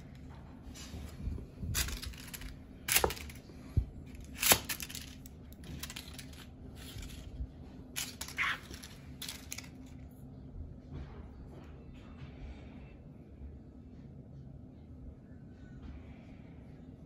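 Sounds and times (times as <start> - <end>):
toy skittering over hardwood floor: 0.8 - 7.4, 8.0 - 9.9
crinkle ball toy crackling: 1.7 - 7.3, 8.0 - 9.9.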